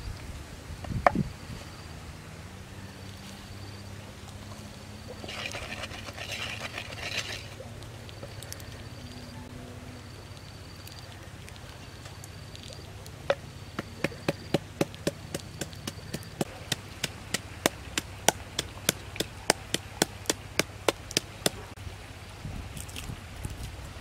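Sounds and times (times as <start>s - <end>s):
wooden pestle pounding in mortar: 13.8s - 21.6s.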